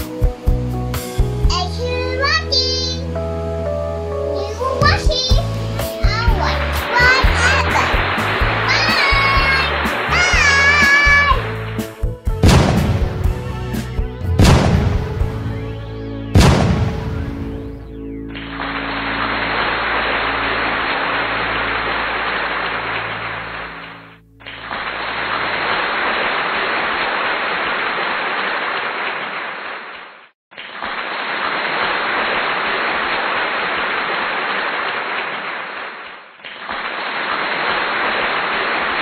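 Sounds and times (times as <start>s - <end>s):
rain-like hiss: 4.4s - 11.9s, 18.5s - 39.0s.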